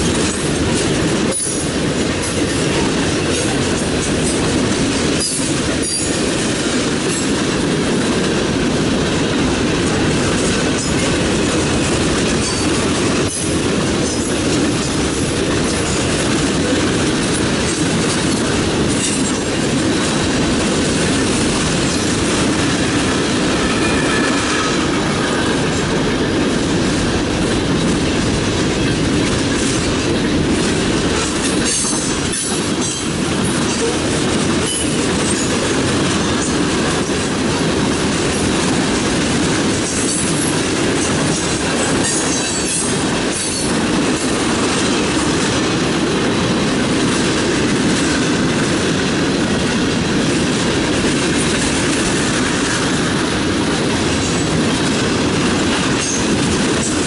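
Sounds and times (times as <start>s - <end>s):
freight train wheels rumbling: 0.0s - 57.0s
high-pitched wheel squeals: 23.5s - 25.4s.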